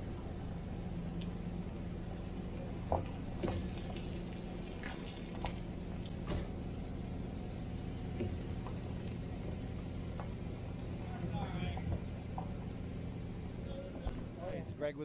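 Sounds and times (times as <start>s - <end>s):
truck engine running: 0.0s - 15.0s.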